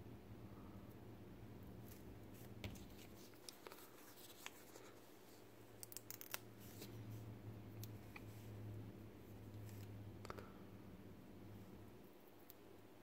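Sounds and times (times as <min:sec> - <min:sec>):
low steady hum: 0:00.0 - 0:13.0
fingers handling cable: 0:05.8 - 0:06.9.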